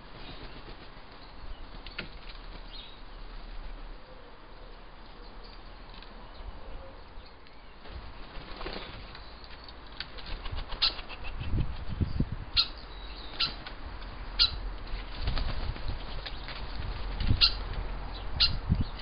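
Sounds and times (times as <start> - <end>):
bird wings flapping: 0.1 - 2.8, 7.8 - 9.2, 9.9 - 11.3, 14.8 - 17.8.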